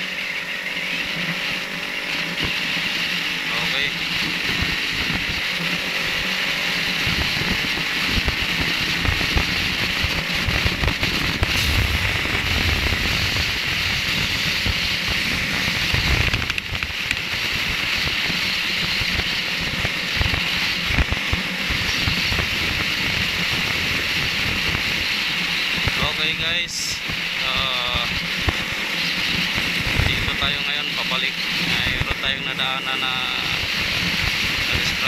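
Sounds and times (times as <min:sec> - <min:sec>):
motorcycle engine and tyres: 0:00.0 - 0:35.0
wind buffeting microphone: 0:06.9 - 0:30.6.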